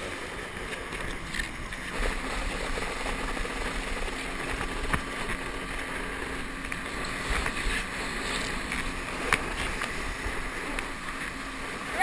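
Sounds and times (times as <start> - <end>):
motorboat engine hum: 0.0 - 12.0
rushing water and wind: 0.0 - 12.0.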